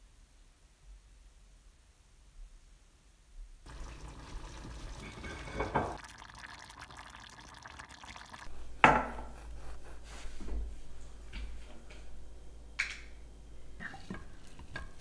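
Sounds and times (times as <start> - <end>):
wooden spoon stirring steel pot: 3.7 - 8.4
stew simmering: 3.7 - 10.0.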